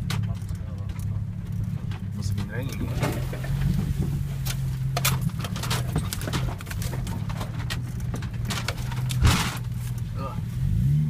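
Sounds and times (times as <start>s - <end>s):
car engine at low revs: 0.0s - 11.0s
car rattling over rough track: 0.0s - 11.0s
heavy thump: 9.2s - 9.7s.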